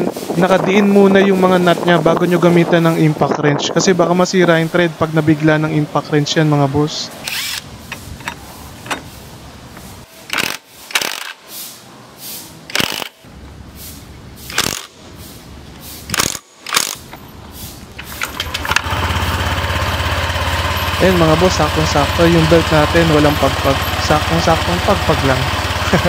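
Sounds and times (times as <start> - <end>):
impact wrench hammering: 14.5 - 14.9.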